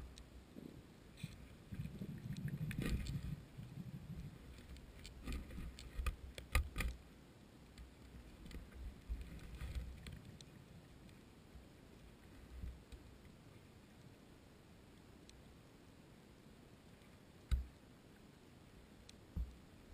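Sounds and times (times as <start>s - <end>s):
underwater rumble: 0.0s - 6.0s.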